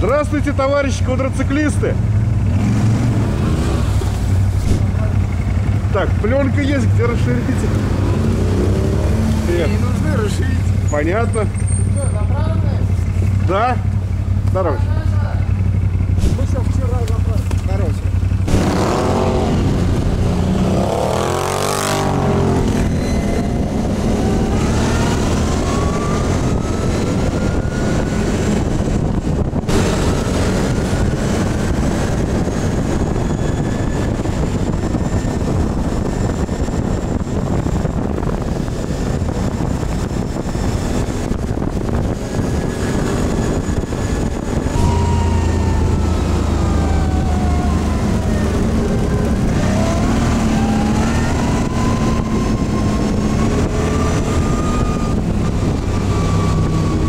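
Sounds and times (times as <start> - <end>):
quad bike engine running: 2.0 - 26.8.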